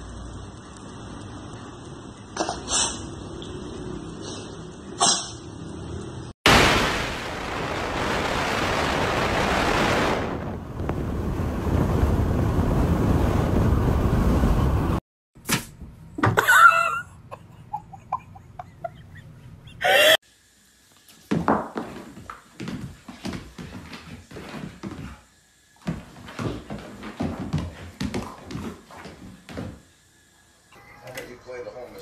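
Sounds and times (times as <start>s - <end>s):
wind rushing past car window: 7.1s - 15.0s.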